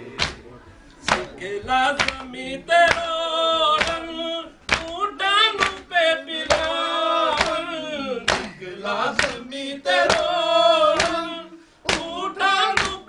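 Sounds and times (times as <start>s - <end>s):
hands slapping chests: 0.2s - 0.4s, 1.0s - 1.4s, 2.0s - 2.2s, 3.8s - 4.0s, 4.7s - 5.0s, 5.6s - 5.8s, 7.3s - 7.7s, 8.3s - 8.6s, 10.0s - 10.3s, 11.0s - 11.2s, 11.9s - 13.0s
men chanting in chorus: 1.2s - 13.0s.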